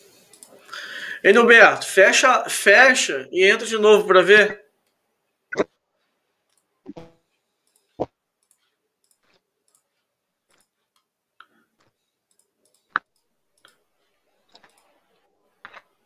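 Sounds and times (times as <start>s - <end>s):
faint clicks and taps: 5.6s - 16.0s.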